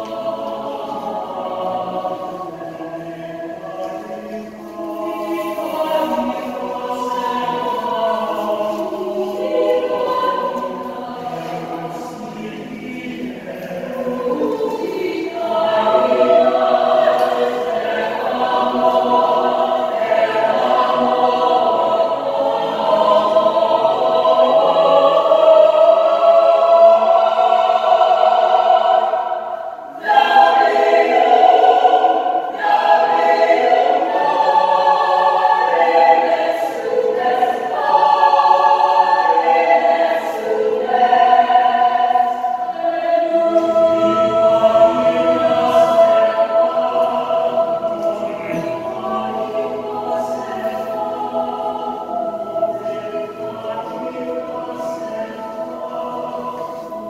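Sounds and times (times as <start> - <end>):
mixed choir singing in harmony: 0.0 - 57.0.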